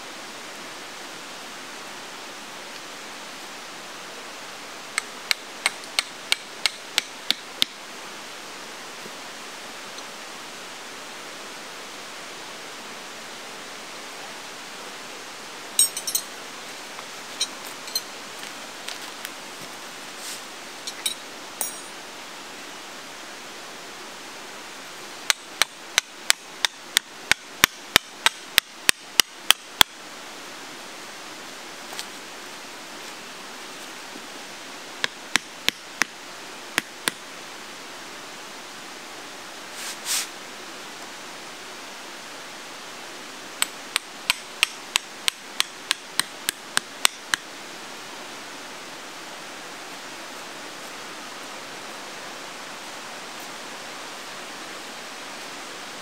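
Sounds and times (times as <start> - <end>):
steady hiss: 0.0 - 56.0
hammer striking metal tent stakes: 5.6 - 7.8, 43.6 - 47.4.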